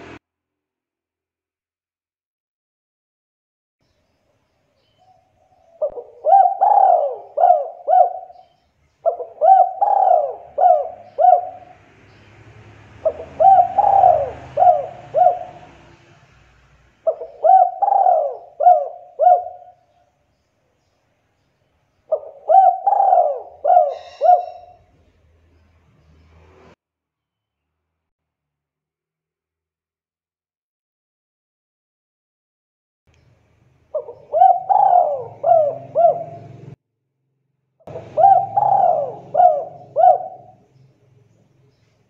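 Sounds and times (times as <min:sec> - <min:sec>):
dove cooing: 0:05.4 - 0:11.8, 0:13.0 - 0:16.0, 0:17.0 - 0:19.9, 0:22.1 - 0:24.9, 0:33.9 - 0:36.8, 0:37.9 - 0:40.6.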